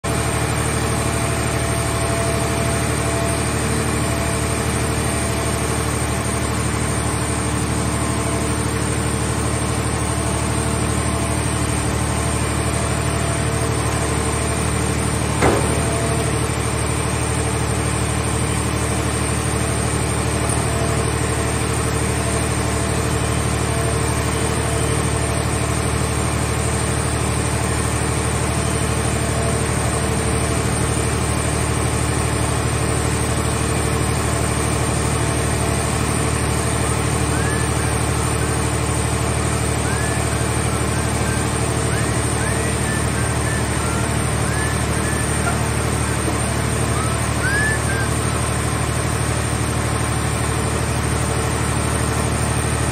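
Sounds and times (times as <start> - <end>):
baler engine and hydraulics running: 0.1 - 52.9
sharp knock: 15.4 - 16.2.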